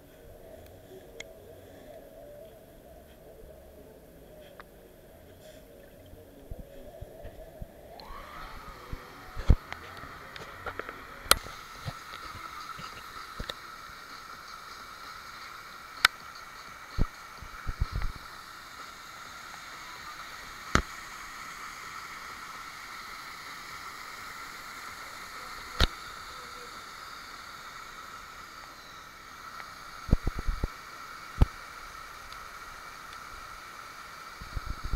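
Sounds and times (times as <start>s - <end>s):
stream rushing over rocks: 7.9s - 34.9s.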